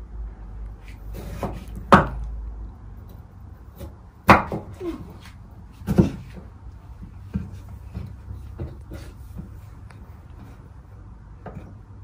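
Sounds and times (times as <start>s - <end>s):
sharp kitchen knocks: 1.4s - 2.2s, 4.2s - 4.9s.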